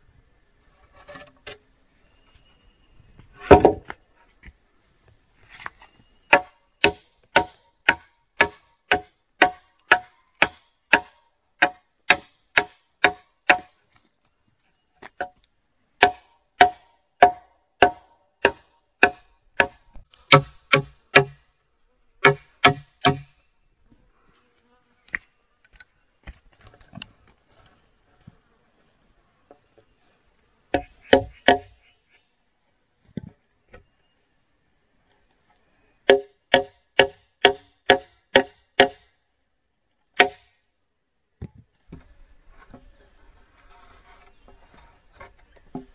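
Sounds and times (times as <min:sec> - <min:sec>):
faint insect drone: 0:00.0 - 0:45.9
hand tool striking wood: 0:03.5 - 0:03.9, 0:06.3 - 0:13.7, 0:16.0 - 0:21.4, 0:22.2 - 0:23.3, 0:30.7 - 0:31.8, 0:36.1 - 0:39.1, 0:40.2 - 0:40.5
hard knocks: 0:16.0 - 0:21.4, 0:22.2 - 0:23.3, 0:30.8 - 0:31.7.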